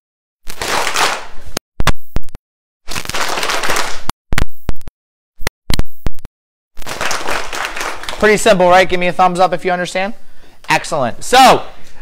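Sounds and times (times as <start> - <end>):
children clapping: 0.6 - 1.3, 3.1 - 4.0, 6.8 - 8.4
person clapping a rhythm: 0.6 - 1.3, 3.1 - 4.1, 6.8 - 8.4.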